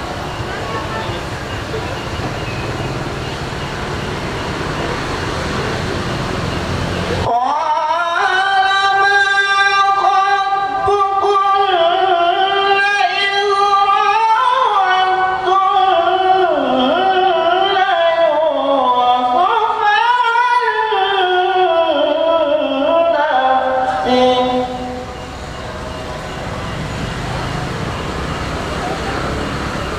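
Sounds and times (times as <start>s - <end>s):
man chanting recitation: 7.2s - 25.3s.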